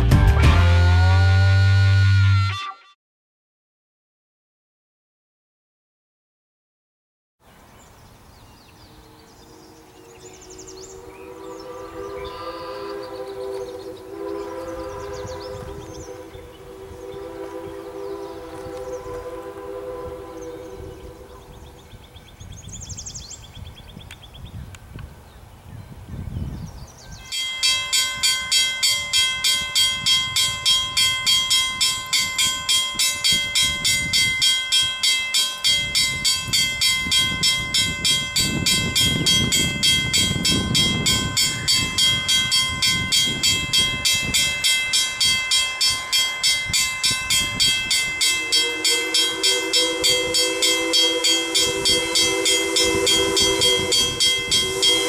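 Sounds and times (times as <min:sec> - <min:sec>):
chime steam whistle: 0:00.5 - 0:03.0, 0:09.0 - 0:23.2, 0:27.1 - 0:55.0
bell ringing rapidly: 0:27.3 - 0:55.0.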